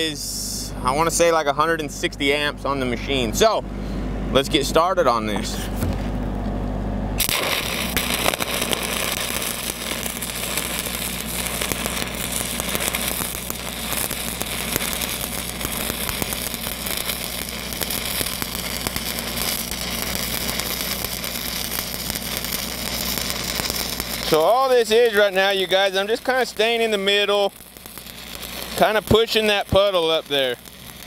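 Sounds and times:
low hum: 0:00.0 - 0:31.0
welding arc crackling: 0:07.2 - 0:31.0.

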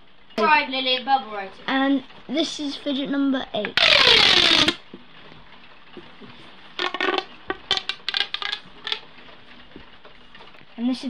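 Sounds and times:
plastic tube whirring rush: 0:03.7 - 0:04.8, 0:06.8 - 0:09.0.

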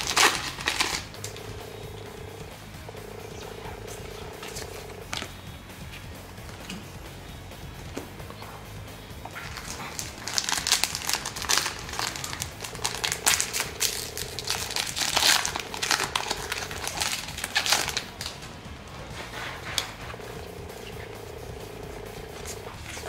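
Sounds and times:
foil wrapper crinkling: 0:00.0 - 0:01.6, 0:09.4 - 0:18.4.

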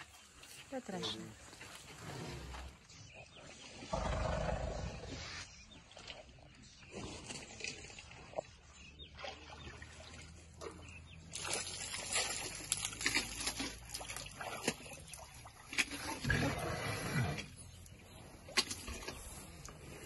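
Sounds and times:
water sloshing and trickling: 0:05.5 - 0:20.0.

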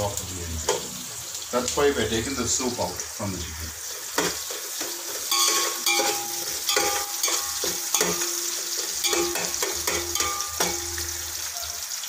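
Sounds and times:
onions sizzling in oil: 0:00.0 - 0:12.0
metal spoon clinking on pot: 0:04.2 - 0:11.4.

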